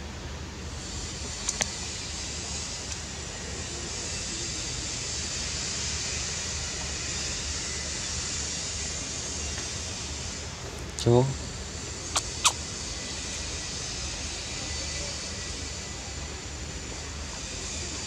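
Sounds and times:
sharp clicks: 12.2s - 12.6s.

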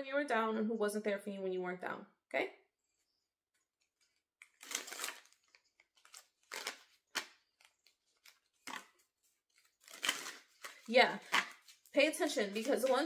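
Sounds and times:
cards shuffling: 4.1s - 13.0s
cards snapping: 4.4s - 9.0s, 9.6s - 11.7s.

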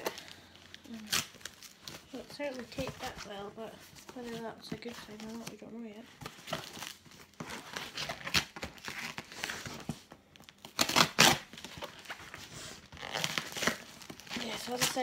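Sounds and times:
cardboard and tape tearing: 0.0s - 15.0s
knife slitting packing tape: 7.4s - 9.6s, 10.6s - 11.9s, 13.0s - 15.0s.

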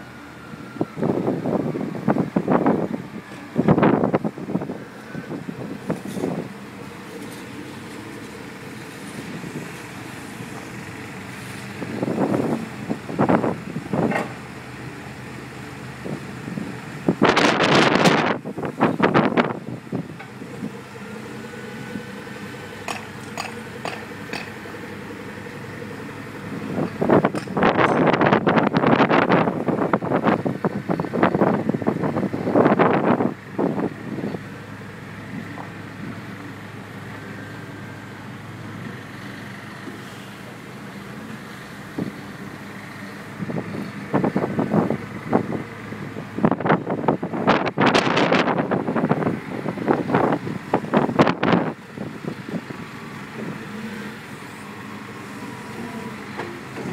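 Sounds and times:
diesel engine running: 0.0s - 56.9s
wind buffeting microphone: 0.4s - 14.6s, 15.8s - 36.8s, 41.7s - 53.8s
levelling beam dragging through sand: 5.8s - 12.8s.

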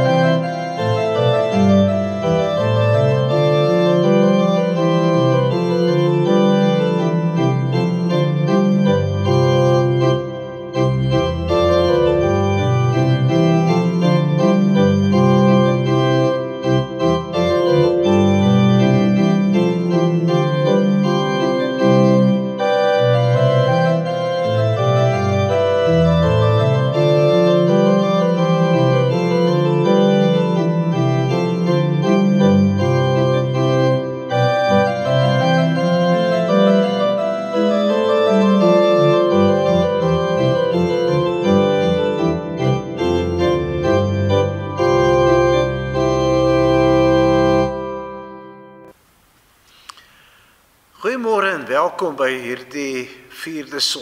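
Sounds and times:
organ playing slow chords: 0.0s - 49.0s.

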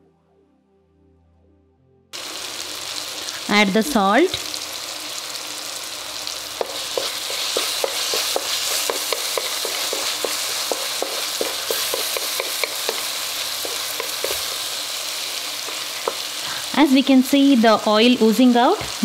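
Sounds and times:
masala sizzling in oil: 2.2s - 19.0s
spatula knocking and scraping pan: 6.6s - 14.8s, 15.6s - 16.4s.

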